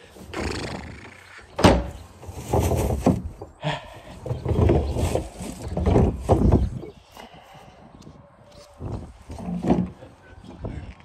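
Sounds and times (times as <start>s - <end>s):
plastic cart wheels rumbling and rattling: 2.2s - 3.5s, 4.2s - 6.8s.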